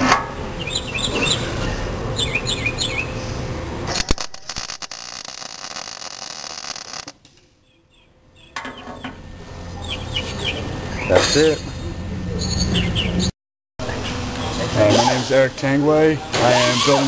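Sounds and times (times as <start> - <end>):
birds chirping: 0.5 - 3.6, 7.4 - 15.4
welder arc crackling: 3.9 - 7.3.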